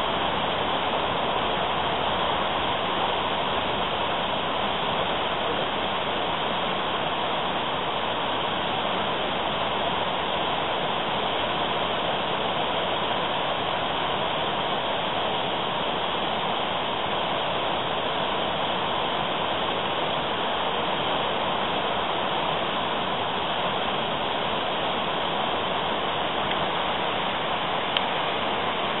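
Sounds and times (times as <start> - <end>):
river water rushing: 0.0 - 29.0.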